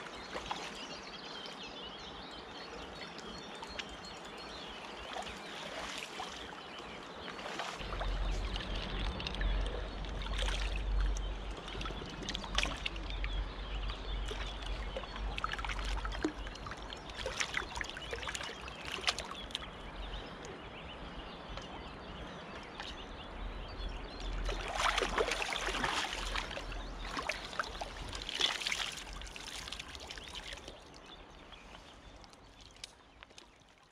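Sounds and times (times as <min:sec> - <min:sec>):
water splashing and lapping: 0:00.0 - 0:01.9, 0:02.5 - 0:33.9
steady low rumble: 0:07.8 - 0:18.3.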